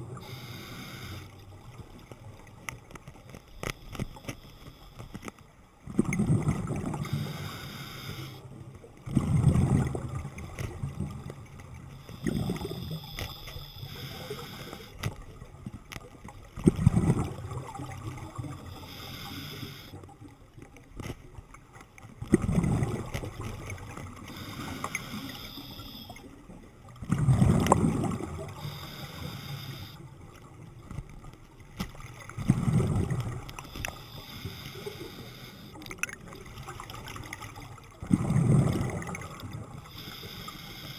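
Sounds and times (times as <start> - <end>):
regulator inhalation hiss: 0.2 - 1.4, 7.1 - 8.4, 12.1 - 15.0, 18.8 - 20.0, 24.3 - 26.2, 28.5 - 30.0, 33.6 - 35.8, 39.9 - 40.9
exhaled bubbles gushing underwater: 5.8 - 20.7, 21.4 - 40.9.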